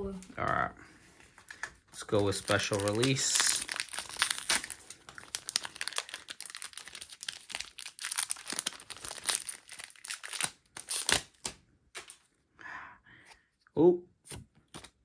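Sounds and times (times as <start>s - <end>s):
foil wrapper crinkling: 1.5s - 11.4s.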